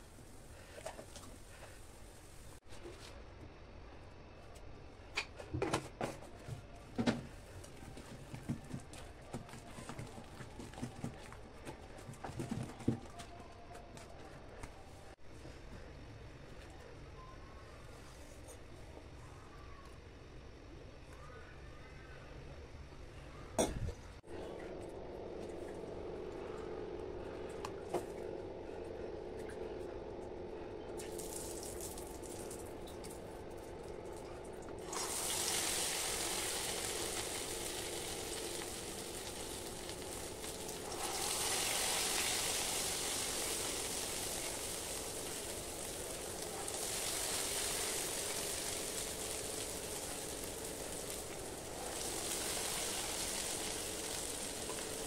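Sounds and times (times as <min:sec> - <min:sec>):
steady hum: 0:22.2 - 0:55.0
batter sizzling in hot oil: 0:34.8 - 0:55.0.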